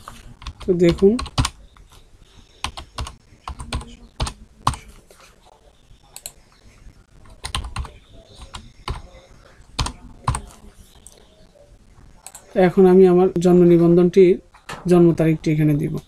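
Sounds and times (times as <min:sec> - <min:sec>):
computer keyboard keys clacking: 0:00.4 - 0:01.6, 0:02.6 - 0:04.8, 0:07.4 - 0:09.1, 0:09.8 - 0:11.2.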